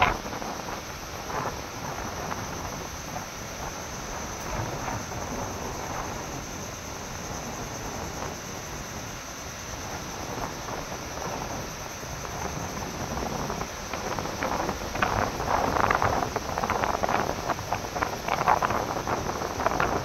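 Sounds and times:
choppy sea washing: 0.0 - 20.0
wind blowing over microphone: 0.0 - 20.0.

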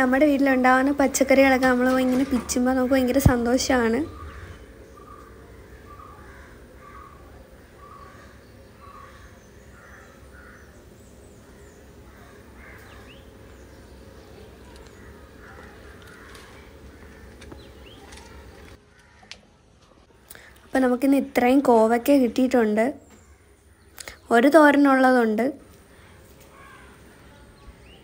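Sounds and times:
small birds chirping: 0.1 - 19.3, 22.6 - 24.6, 25.6 - 28.0
crows cawing: 4.1 - 13.5, 14.6 - 19.4, 25.7 - 27.3.

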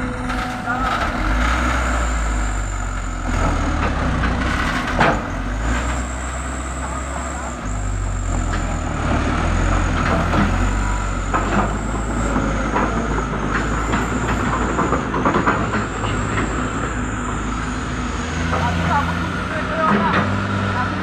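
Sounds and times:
diesel engines running under load: 0.0 - 21.0.

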